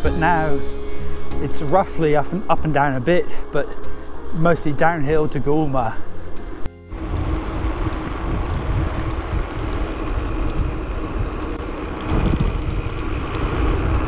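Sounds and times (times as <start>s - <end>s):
bike tyres rolling on asphalt: 0.0s - 14.0s
wind buffeting microphone: 6.2s - 14.0s.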